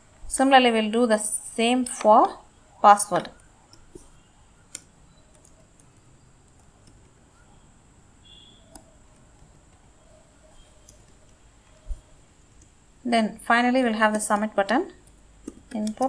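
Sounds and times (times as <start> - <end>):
low background hum: 0.0 - 16.0
mouse and keyboard clicks: 4.7 - 7.2, 8.3 - 9.8, 10.5 - 12.7, 14.2 - 16.0.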